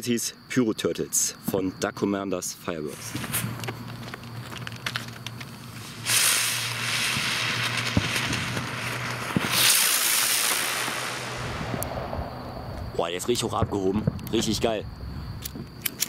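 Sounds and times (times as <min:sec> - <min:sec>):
spinner firework hissing: 0:02.9 - 0:13.0.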